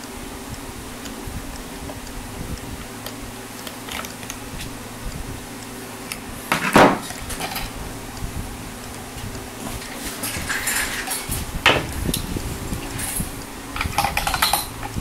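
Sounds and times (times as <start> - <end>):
steady low hum: 0.0 - 15.0
light metallic clicks and clinks: 13.8 - 15.0
metal rattle: 13.8 - 15.0.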